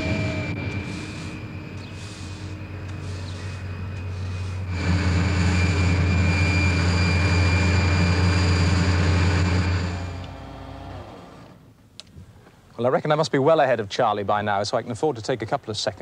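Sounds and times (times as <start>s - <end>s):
thin high whine: 0.0s - 11.4s
engine and fan hum: 0.0s - 12.1s.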